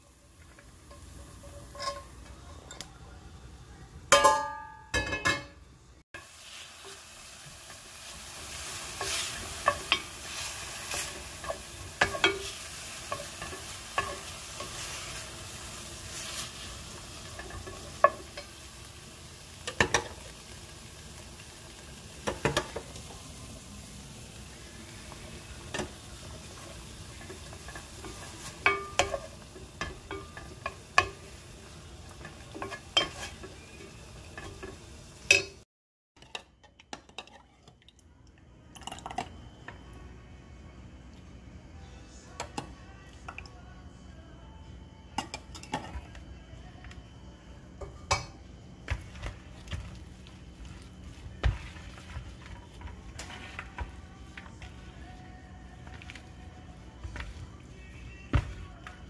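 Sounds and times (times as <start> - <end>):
beef sizzling in a pan: 0.0 - 2.2, 6.2 - 35.7, 48.0 - 59.0
spatula scraping a pan: 0.7 - 2.7, 8.5 - 18.5, 32.1 - 34.8, 49.0 - 55.1.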